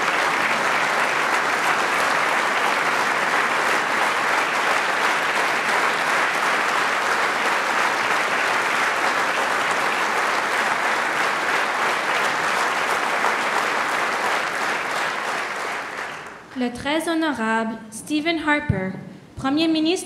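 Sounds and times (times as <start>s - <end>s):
large audience applause: 0.0s - 16.6s.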